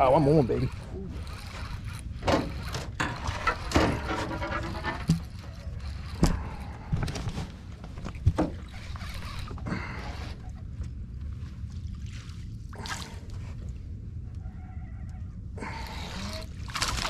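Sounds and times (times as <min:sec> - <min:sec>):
water splashing: 0:16.0 - 0:17.0.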